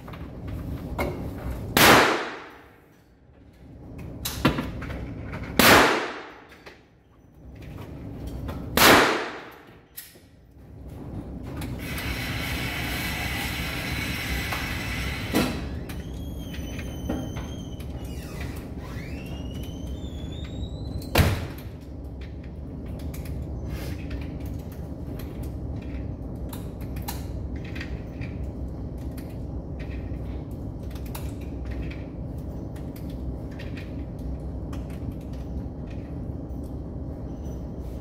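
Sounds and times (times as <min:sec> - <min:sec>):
steady low rumble: 0:20.8 - 0:38.0.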